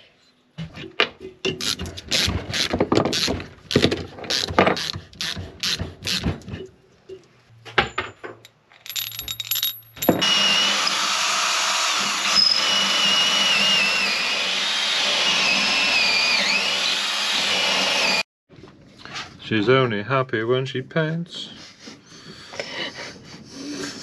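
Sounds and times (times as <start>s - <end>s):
cordless drill whining: 10.2s - 18.2s.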